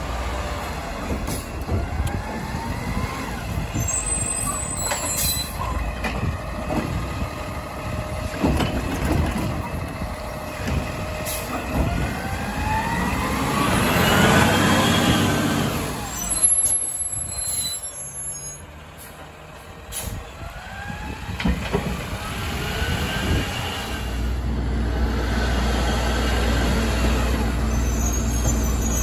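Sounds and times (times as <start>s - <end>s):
air brakes hissing: 11.2s - 11.7s, 19.9s - 20.3s.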